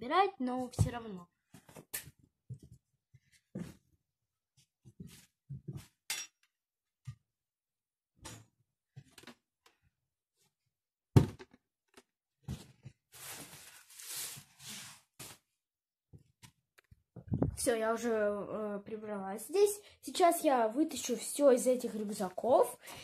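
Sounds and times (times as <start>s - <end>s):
household objects knocking: 11.2s - 11.6s.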